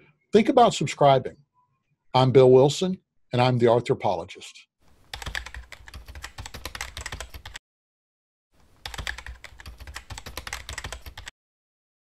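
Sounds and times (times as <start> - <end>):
keyboard typing: 5.1 - 7.6, 8.8 - 11.3.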